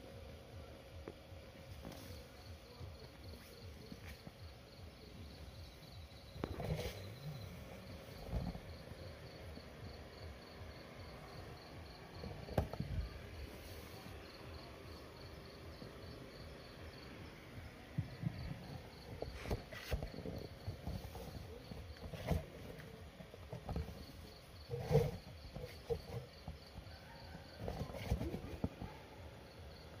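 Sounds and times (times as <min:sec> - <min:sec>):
crickets chirping: 0:00.1 - 0:30.0
handling thumps and rustles: 0:01.6 - 0:04.5, 0:05.9 - 0:09.0, 0:12.1 - 0:14.1, 0:17.9 - 0:29.0.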